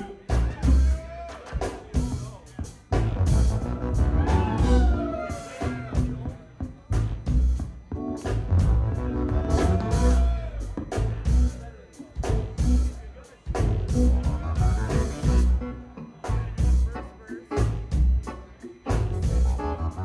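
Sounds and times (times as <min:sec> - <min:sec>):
electric bass line: 0:00.0 - 0:01.0, 0:02.0 - 0:20.0
melodic lead line: 0:03.1 - 0:10.5.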